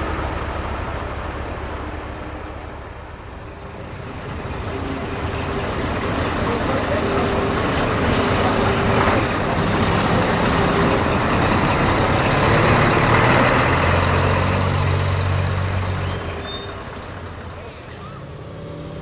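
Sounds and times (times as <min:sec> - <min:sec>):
truck diesel engine passing: 0:00.0 - 0:19.0.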